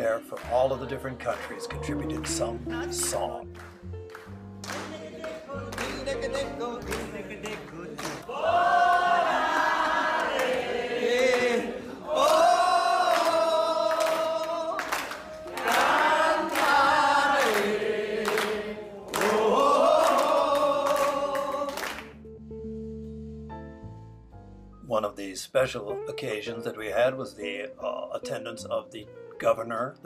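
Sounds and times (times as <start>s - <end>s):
hand claps: 1.2s - 6.2s, 6.8s - 8.3s, 8.9s - 11.6s, 13.0s - 22.1s
group singing: 4.8s - 22.0s.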